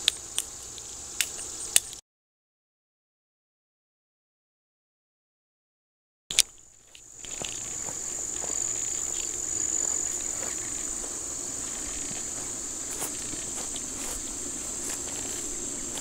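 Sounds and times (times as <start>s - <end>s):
insects trilling: 0.0s - 2.0s, 6.3s - 16.0s
footsteps on grass: 6.3s - 16.0s.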